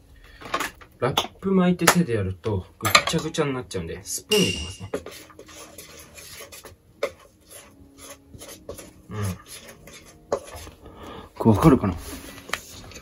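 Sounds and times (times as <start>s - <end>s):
spoon scraping metal bowl: 4.3s - 10.8s.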